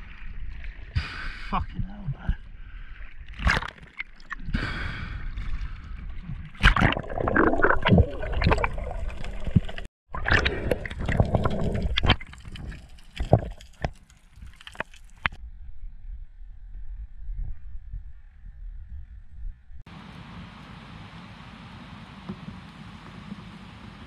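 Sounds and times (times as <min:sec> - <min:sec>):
water sloshing and gurgling: 0:00.0 - 0:15.4
knocks and splashes: 0:03.2 - 0:04.5, 0:05.4 - 0:15.4.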